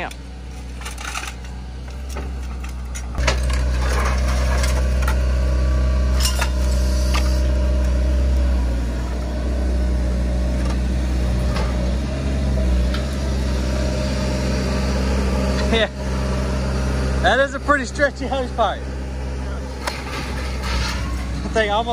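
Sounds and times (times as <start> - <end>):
scrap metal clanking: 0.0 - 5.2, 6.1 - 7.5, 19.7 - 21.4
excavator diesel engine running: 0.0 - 21.9.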